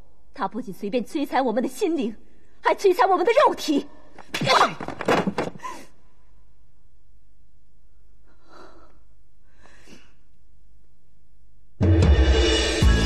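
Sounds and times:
woman breathing: 5.6 - 6.1, 8.0 - 10.4.

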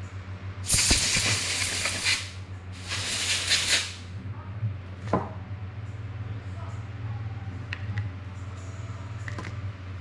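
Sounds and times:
aerosol spray can hissing: 0.7 - 4.0.

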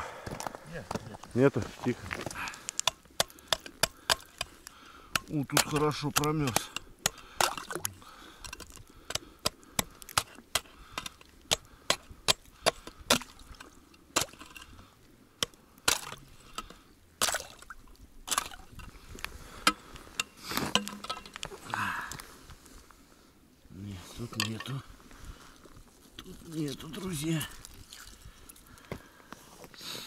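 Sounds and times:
ice chisel chopping ice: 2.8 - 7.8, 8.5 - 13.4, 14.2 - 14.5, 15.9 - 16.2, 17.2 - 17.6.

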